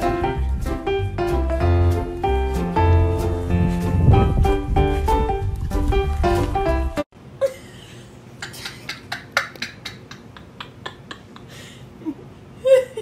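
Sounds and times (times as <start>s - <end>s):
background music: 0.0s - 7.1s.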